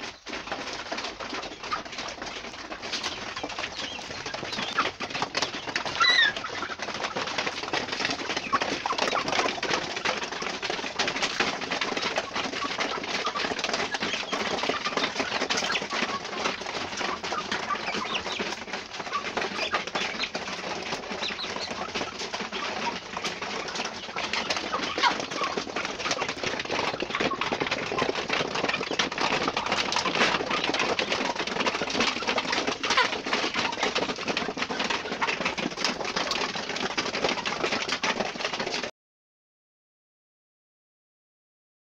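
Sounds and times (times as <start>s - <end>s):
chickens calling and clucking: 0.0s - 38.9s
high chick peeps: 2.9s - 6.8s.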